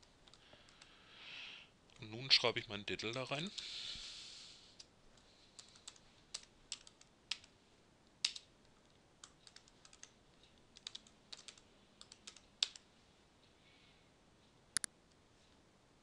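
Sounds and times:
computer keyboard typing: 0:00.2 - 0:00.9, 0:05.6 - 0:07.5, 0:08.2 - 0:08.5, 0:09.2 - 0:12.9.

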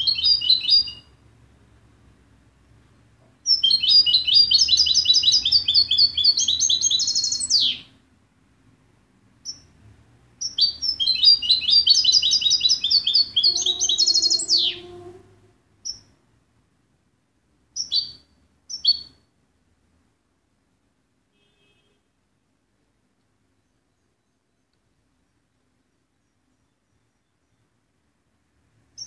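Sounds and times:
goldfinch twittering song: 0:00.0 - 0:01.1, 0:03.4 - 0:07.9, 0:09.4 - 0:09.7, 0:10.4 - 0:14.9, 0:15.8 - 0:16.1, 0:17.8 - 0:19.2.

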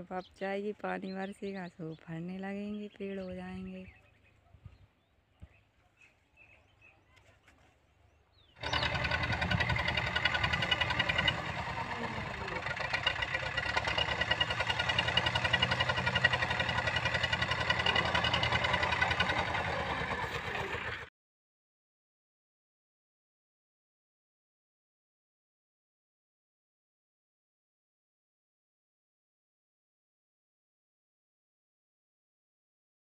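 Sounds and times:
tractor diesel engine running: 0:08.6 - 0:21.1.

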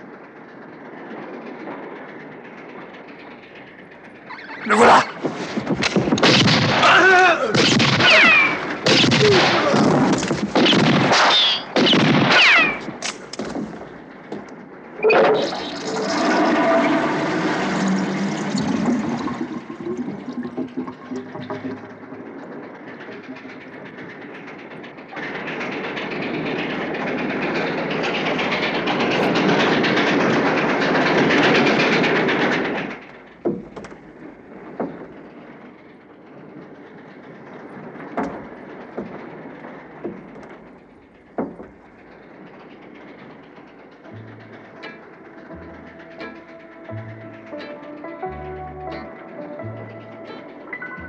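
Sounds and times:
steam locomotive rushing steam: 0:00.0 - 0:51.0
wheels rolling on rails: 0:00.0 - 0:51.0
sharp knocks: 0:31.2 - 0:35.2, 0:38.2 - 0:39.3, 0:40.0 - 0:42.0.

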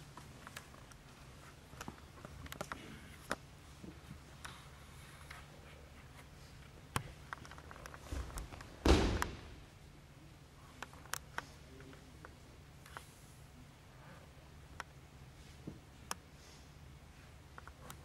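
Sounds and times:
low steady hum: 0:00.0 - 0:18.0
body thudding onto mats: 0:08.1 - 0:09.6
small thump: 0:08.1 - 0:09.6.

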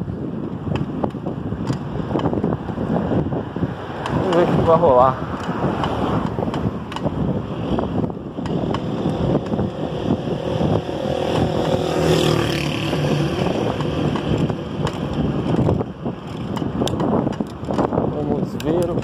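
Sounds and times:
road traffic: 0:00.0 - 0:19.0
wind on microphone: 0:00.0 - 0:19.0
vehicle engine passing: 0:08.6 - 0:15.8.

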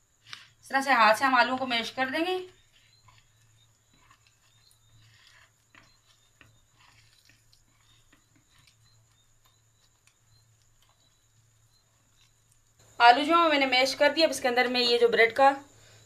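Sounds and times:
potatoes being mashed squishing: 0:01.4 - 0:12.9.

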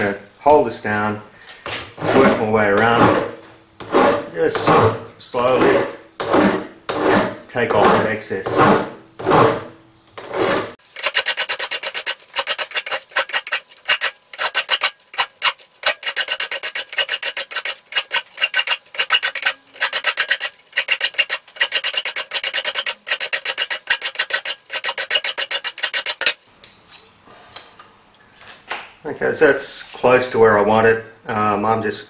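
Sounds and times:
file rasping on metal: 0:02.0 - 0:04.9, 0:05.6 - 0:26.4.

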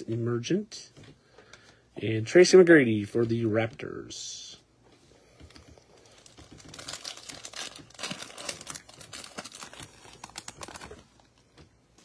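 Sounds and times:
foil wrapper crinkling and tearing: 0:05.5 - 0:11.4.

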